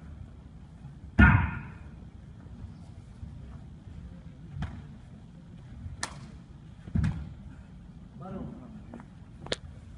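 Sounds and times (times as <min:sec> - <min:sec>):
martial arts strikes and kicks: 0:01.2 - 0:01.9.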